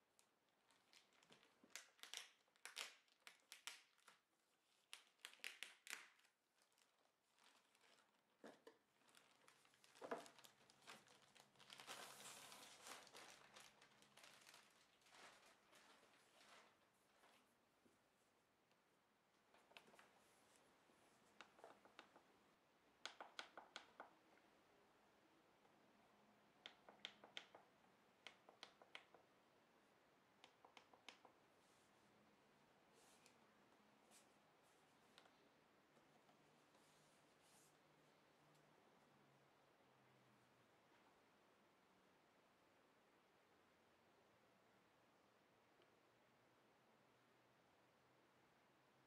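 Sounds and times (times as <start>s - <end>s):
plastic bag crinkling: 0.6s - 4.2s, 4.9s - 8.2s, 8.9s - 17.4s.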